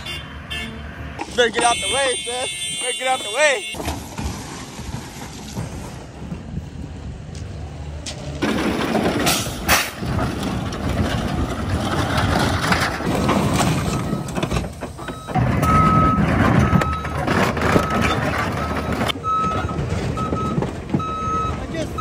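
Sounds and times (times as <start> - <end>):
excavator engine running: 6.0 - 22.0
metal crunching and cracking: 8.4 - 19.2
reversing alarm beeping: 15.0 - 22.0.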